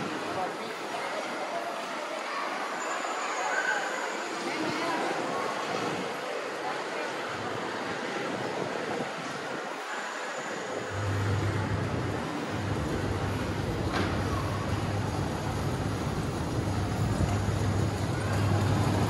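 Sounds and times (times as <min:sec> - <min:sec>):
outdoor noise: 0:00.0 - 0:19.0
low mechanical hum: 0:10.9 - 0:19.0.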